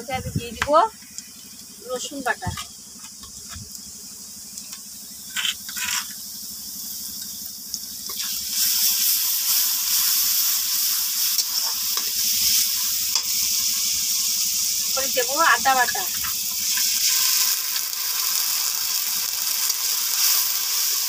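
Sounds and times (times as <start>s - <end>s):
onions sizzling in oil: 0.0s - 21.0s
spatula scraping wok: 5.2s - 6.4s, 8.0s - 21.0s.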